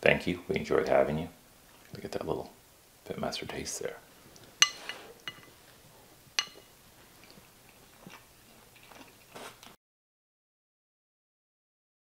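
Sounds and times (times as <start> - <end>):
utensil clinking ceramic dish: 4.6 - 5.5, 6.4 - 6.7.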